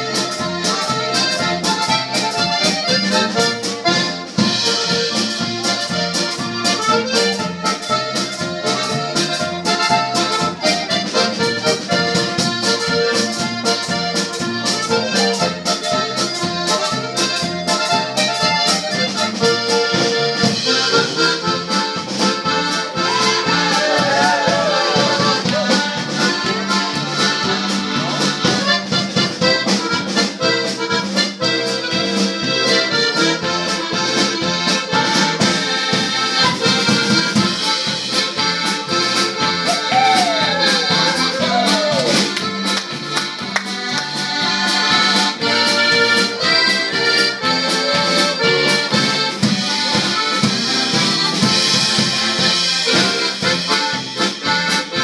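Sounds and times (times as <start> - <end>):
piano accordion: 0.0 - 55.0
polka on button accordion: 0.0 - 55.0.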